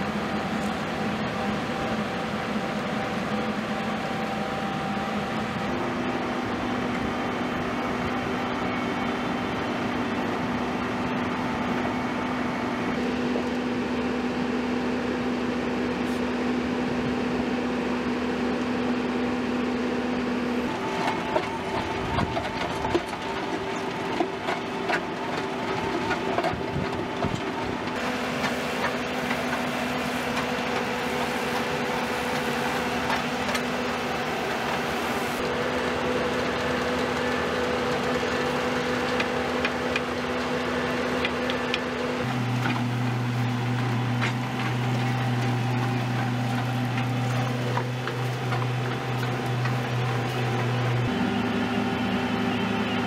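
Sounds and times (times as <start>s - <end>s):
curb machine engine humming: 0.0s - 53.0s
knocks and clatter: 20.8s - 34.9s.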